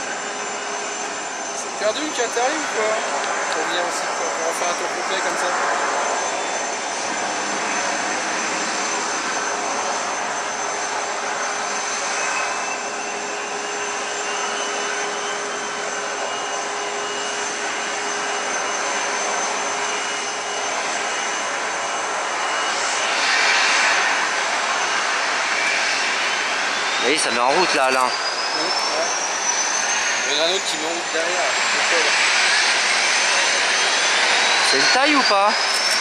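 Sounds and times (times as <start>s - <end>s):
jet engines whining: 0.0s - 36.0s.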